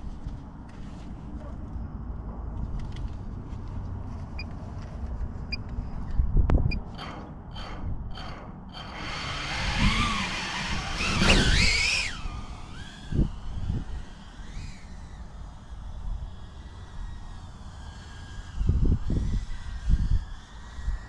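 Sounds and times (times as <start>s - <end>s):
drone motors whining: 8.8s - 21.0s.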